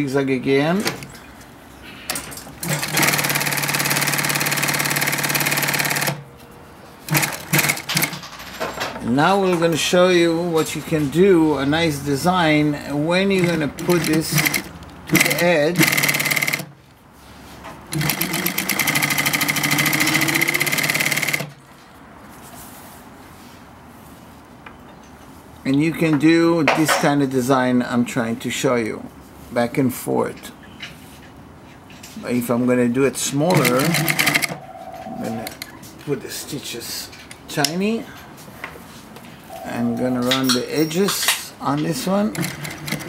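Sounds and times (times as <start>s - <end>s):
industrial sewing machine stitching: 2.6s - 6.2s, 7.1s - 8.2s, 13.3s - 16.7s, 17.9s - 21.5s, 33.5s - 34.6s, 42.0s - 43.0s.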